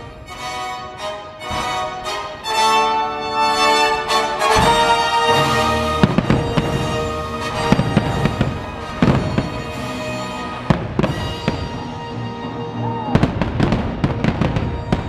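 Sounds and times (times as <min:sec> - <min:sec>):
loud orchestral music: 0:00.0 - 0:15.0
fireworks bangs and crackling: 0:04.4 - 0:12.1, 0:13.1 - 0:15.0.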